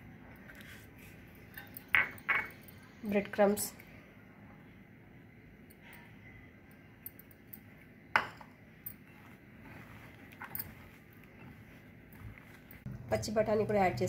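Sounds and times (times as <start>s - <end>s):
hands mixing food: 9.0s - 14.0s.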